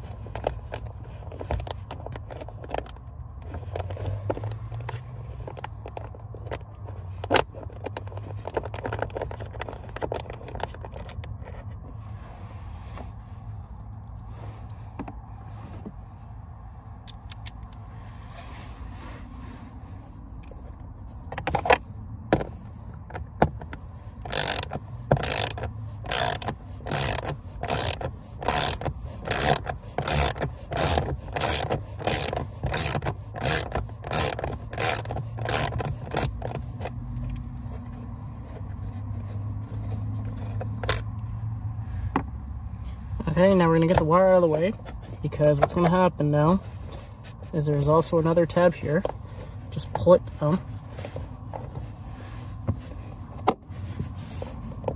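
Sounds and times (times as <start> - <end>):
ratchet clicking: 24.2 - 36.6.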